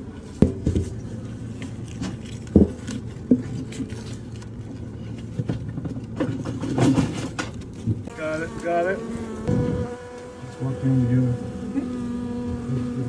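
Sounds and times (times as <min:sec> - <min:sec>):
bee colony humming: 0:06.6 - 0:13.0.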